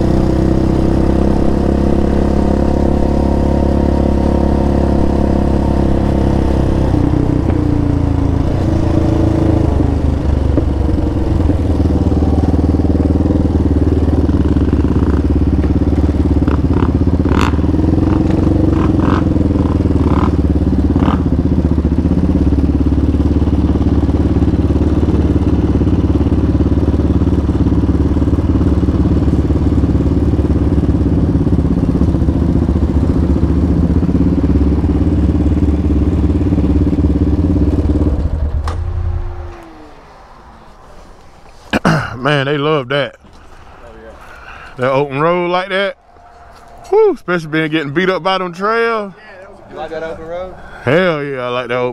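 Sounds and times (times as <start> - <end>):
atv engine idling: 2.6 - 39.8.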